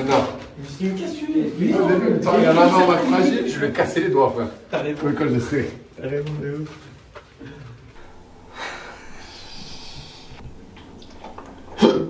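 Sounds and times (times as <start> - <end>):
man exhaling through nose: 8.0 - 12.0.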